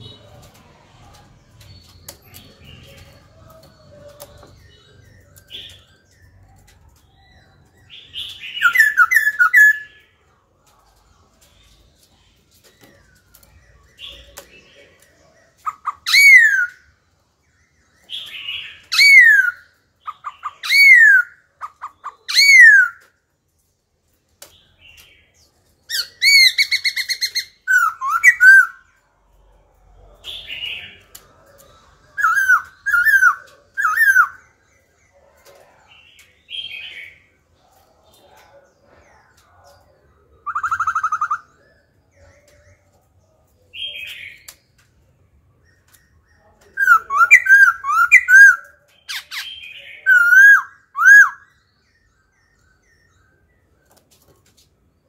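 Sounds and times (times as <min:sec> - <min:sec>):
bird singing whistles and rattles: 0:00.0 - 0:10.0, 0:11.4 - 0:16.8, 0:18.0 - 0:23.2, 0:25.9 - 0:28.9, 0:30.4 - 0:34.5.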